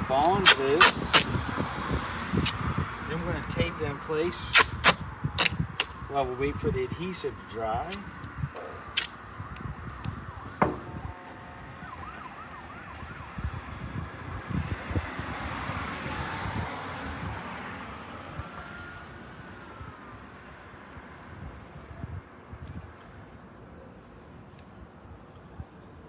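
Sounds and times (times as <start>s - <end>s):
street traffic: 0.0s - 26.0s
distant siren wailing: 8.7s - 14.1s, 17.7s - 20.7s.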